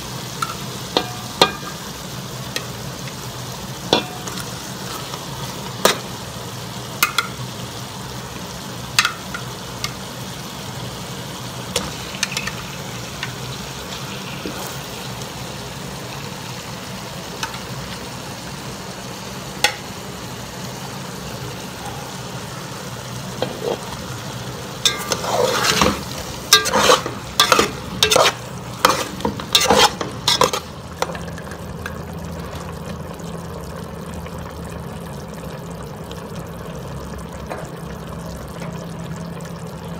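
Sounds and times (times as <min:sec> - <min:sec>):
chicken and onions sizzling in a pot: 0:00.0 - 0:39.9
clattering and scraping while stirring: 0:23.4 - 0:24.0, 0:24.8 - 0:31.9.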